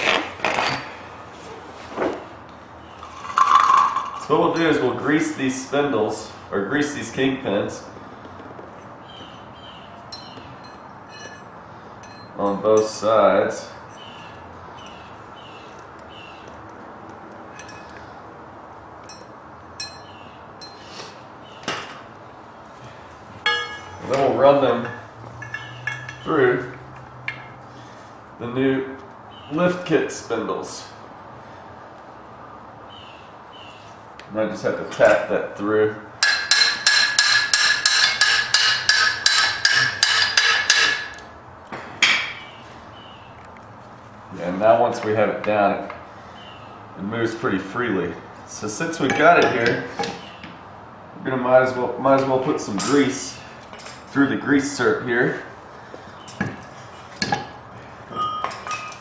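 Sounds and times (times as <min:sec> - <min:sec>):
metal tools clinking: 0:10.1 - 0:13.0, 0:17.5 - 0:18.0, 0:19.0 - 0:20.9, 0:23.4 - 0:27.6, 0:36.2 - 0:41.3, 0:49.0 - 0:50.4, 0:52.2 - 0:54.3, 0:56.2 - 0:59.0
hammer striking metal: 0:23.4 - 0:26.2, 0:36.2 - 0:41.2.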